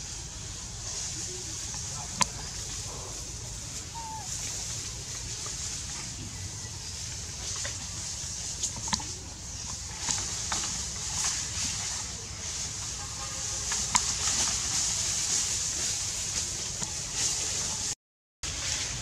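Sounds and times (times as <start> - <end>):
steady high hiss: 0.0 - 17.8
bamboo rustling and knocking: 7.0 - 12.1.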